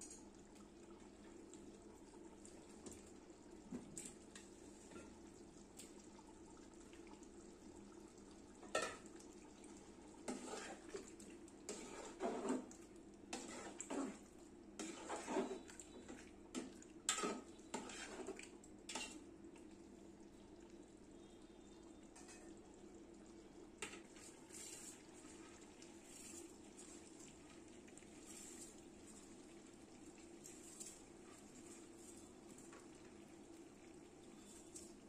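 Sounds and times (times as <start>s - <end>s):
faint steady hum: 0.0s - 35.0s
metal spatula scraping a pot: 10.3s - 11.0s, 11.7s - 12.7s, 13.3s - 14.2s, 14.8s - 15.7s, 17.1s - 19.2s.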